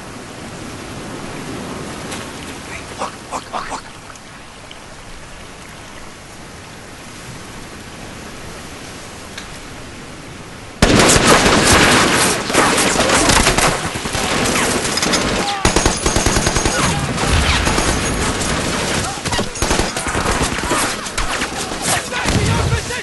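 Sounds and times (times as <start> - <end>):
rain on foliage: 0.0 - 23.0
automatic gunfire: 10.8 - 22.6.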